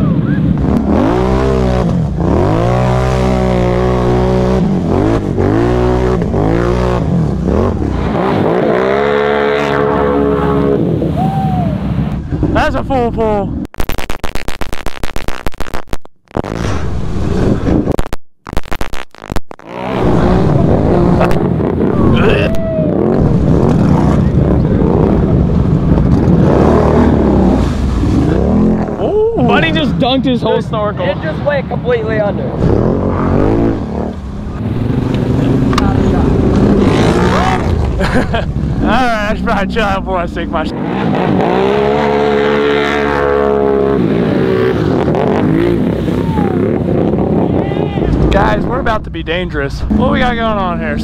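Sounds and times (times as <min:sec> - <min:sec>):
quad bike engine revving: 0:00.0 - 0:11.0, 0:19.6 - 0:30.0, 0:32.5 - 0:47.4
tyres churning muddy water: 0:19.7 - 0:30.9, 0:32.0 - 0:46.8
water and mud splashing: 0:23.1 - 0:30.2.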